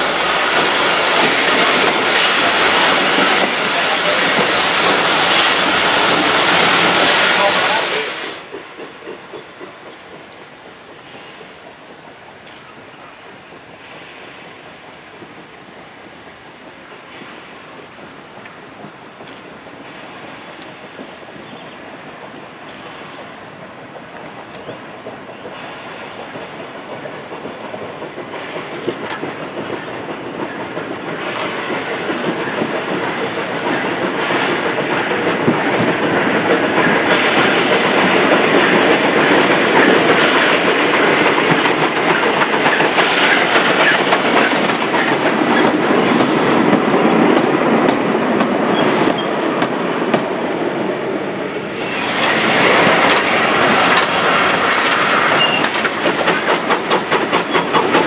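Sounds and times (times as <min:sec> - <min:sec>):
steam train running past: 0:00.0 - 0:58.0
wheels clicking over rail joints: 0:23.6 - 0:50.3, 0:51.6 - 0:58.0.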